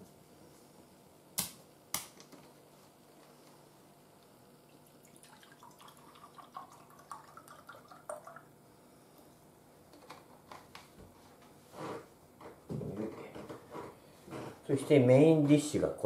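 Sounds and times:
juice glugging into a glass: 4.7 - 8.6.

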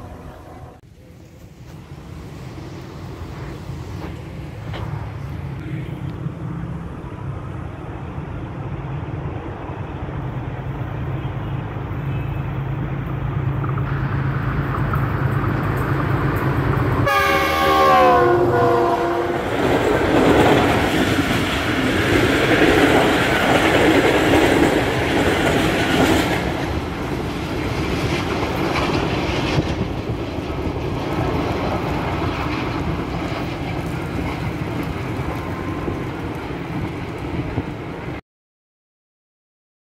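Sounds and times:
diesel locomotive engine rumble: 0.0 - 38.2
coaches clattering over rails: 13.5 - 38.1
train horn: 17.0 - 19.5.

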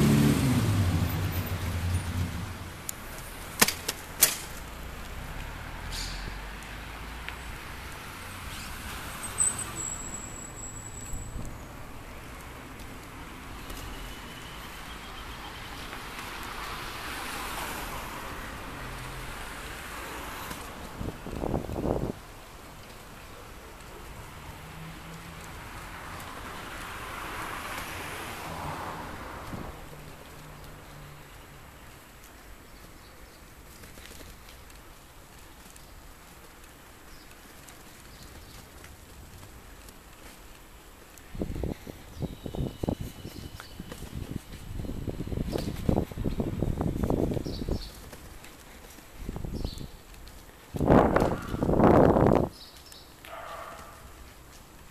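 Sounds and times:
passing traffic: 0.0 - 54.9
wind buffeting microphone: 20.8 - 22.4, 41.3 - 52.7.

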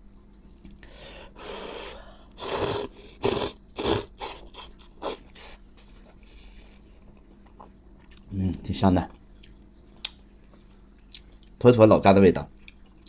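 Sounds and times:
man slurping noodles: 2.4 - 5.5.

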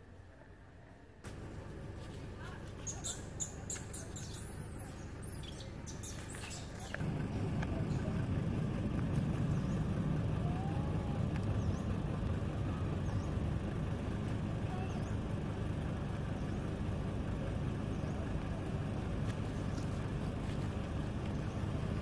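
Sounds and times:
faint bird chirps: 2.8 - 7.0
low rumble: 4.4 - 22.0
dry leaves crackling: 19.0 - 21.9.

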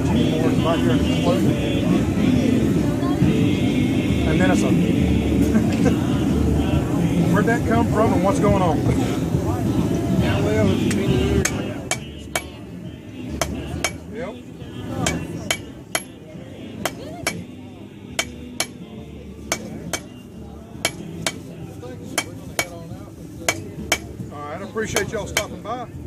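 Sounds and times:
hammer striking metal on anvil: 11.4 - 12.6, 13.4 - 14.0, 15.0 - 16.2, 16.8 - 17.5, 18.2 - 18.8, 19.5 - 20.1, 20.8 - 21.4, 22.2 - 22.8, 23.5 - 24.1, 25.0 - 25.6.

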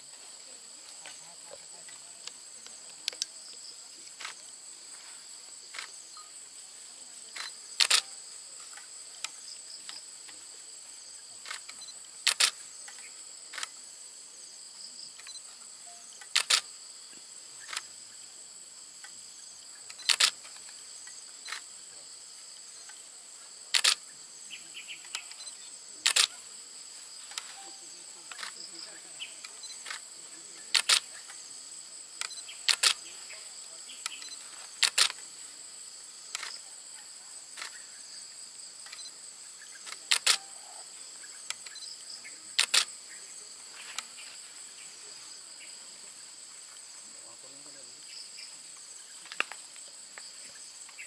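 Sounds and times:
insect chorus: 0.0 - 51.0
sharp double click: 7.4 - 8.1, 16.2 - 16.6, 39.8 - 40.6.

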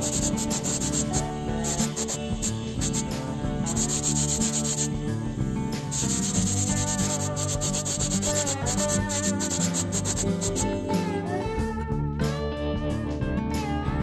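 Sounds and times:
sanding rasp on workpiece: 0.0 - 3.1, 3.7 - 5.0, 5.9 - 10.8
background music: 0.0 - 14.0.

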